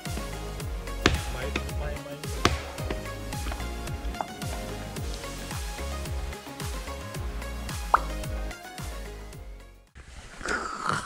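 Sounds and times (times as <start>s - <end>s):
background music: 0.0s - 10.0s
deep drum hits: 1.0s - 6.3s.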